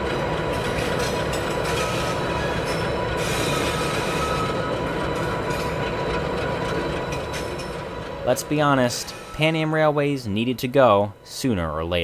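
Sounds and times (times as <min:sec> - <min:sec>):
high wheel squeal: 0:00.0 - 0:10.2
locomotive engine rumble: 0:00.0 - 0:11.4.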